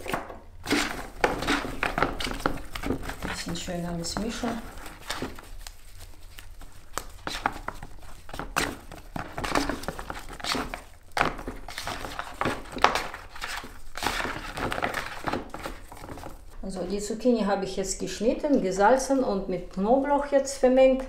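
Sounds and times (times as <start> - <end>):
zucchini slices squelching: 0.0 - 16.6.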